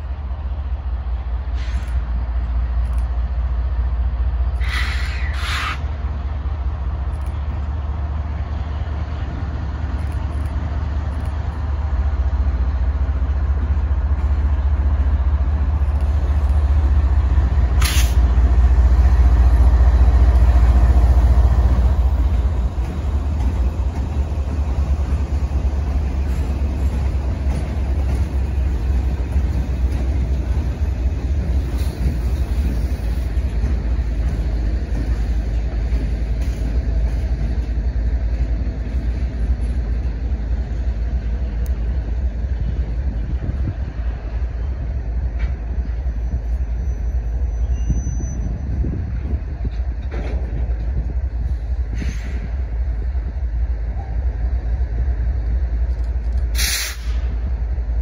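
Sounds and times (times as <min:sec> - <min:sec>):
diesel locomotive engine rumble: 0:00.0 - 0:58.0
freight cars rolling on rails: 0:00.0 - 0:58.0
sharp rail clicks: 0:01.4 - 0:44.5, 0:55.2 - 0:57.6.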